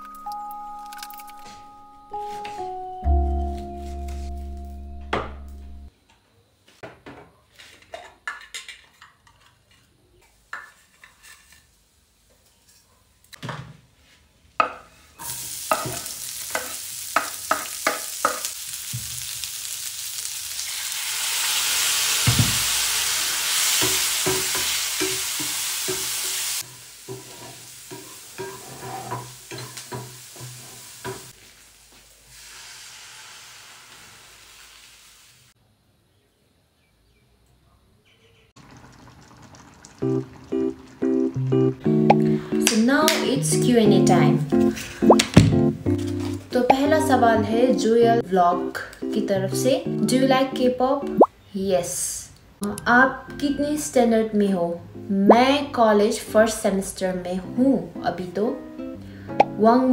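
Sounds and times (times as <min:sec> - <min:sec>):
food sizzling in a pan: 0:15.2 - 0:35.6, 0:38.6 - 0:41.5.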